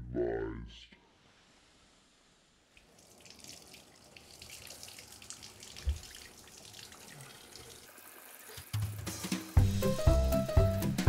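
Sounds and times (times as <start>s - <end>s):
faucet water splashing on shoe: 2.8s - 9.6s.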